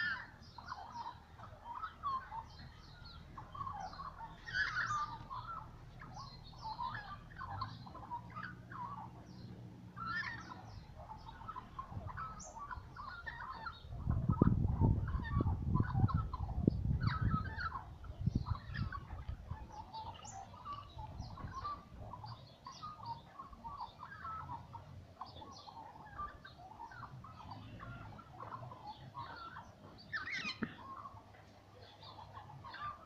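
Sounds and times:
magpies singing: 0.0 - 33.0.

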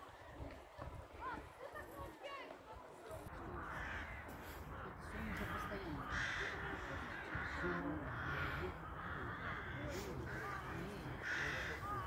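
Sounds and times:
crows cawing: 3.3 - 12.0.

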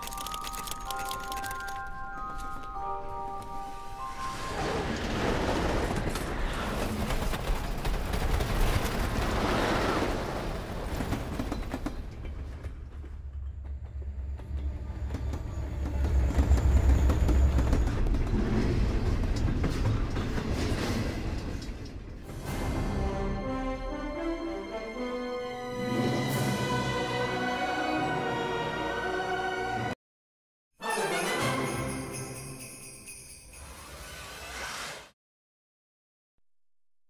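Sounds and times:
steam train running on rails: 3.8 - 23.5.

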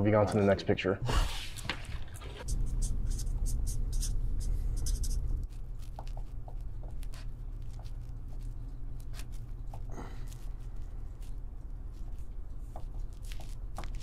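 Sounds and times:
steady low hum: 0.0 - 14.0
pencil scratching on paper: 2.2 - 9.8.

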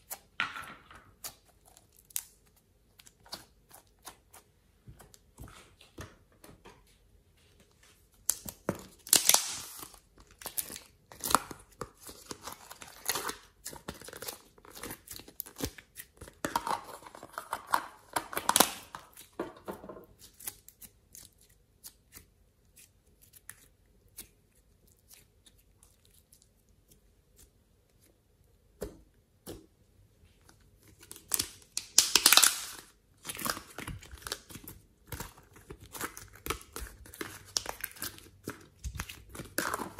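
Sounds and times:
slime crackling and popping: 8.3 - 16.6, 31.1 - 39.9.

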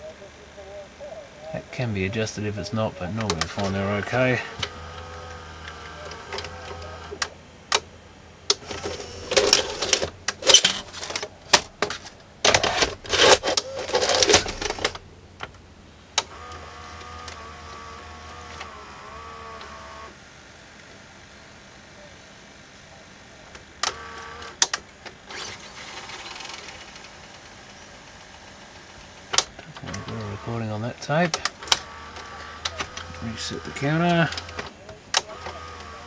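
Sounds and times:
tape-loading mechanism whirring: 3.1 - 7.8, 8.5 - 15.5, 16.2 - 20.2, 23.8 - 27.4, 29.3 - 36.0
cassette ejecting clicks: 3.2 - 3.6, 31.3 - 36.0
cassette mechanism clattering: 3.2 - 7.9, 8.5 - 15.6, 31.2 - 36.0.

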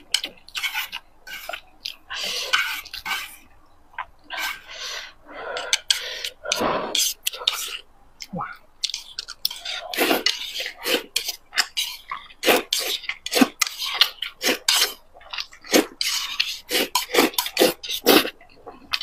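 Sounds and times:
chewing: 5.6 - 19.0
wet slurping: 8.8 - 19.0.

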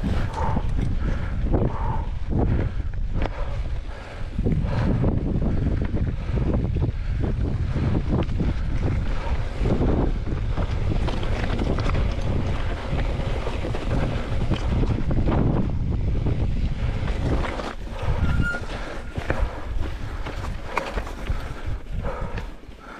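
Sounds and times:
bike rattling over rough ground: 0.0 - 22.9
wind buffeting microphone: 0.0 - 22.9.

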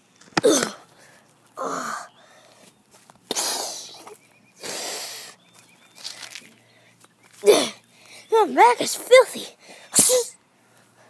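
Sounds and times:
person squealing and grunting: 0.4 - 0.8.

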